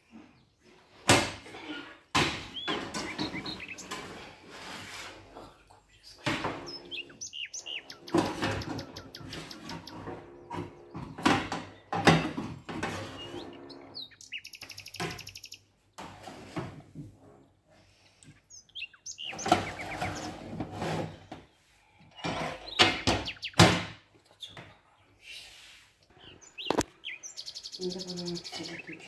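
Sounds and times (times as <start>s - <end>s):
bird chirps: 2.5s - 4.0s, 6.0s - 12.0s, 13.0s - 15.7s, 18.3s - 20.5s, 22.2s - 23.7s, 24.3s - 25.5s, 26.1s - 29.0s.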